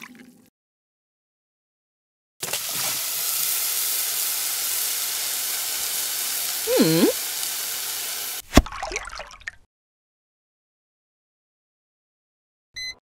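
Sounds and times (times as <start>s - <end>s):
potato sticks sizzling in oil: 2.4s - 8.4s.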